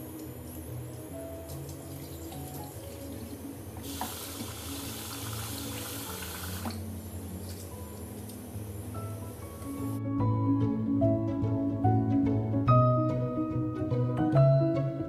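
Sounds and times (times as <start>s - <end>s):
soft background music: 0.0s - 15.0s
tap running into steel bowl: 3.8s - 4.6s.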